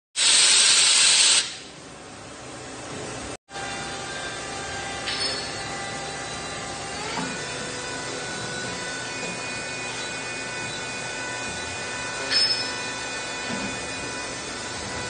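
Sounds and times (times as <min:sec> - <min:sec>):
lathe machine running with whines: 0:03.5 - 0:15.0.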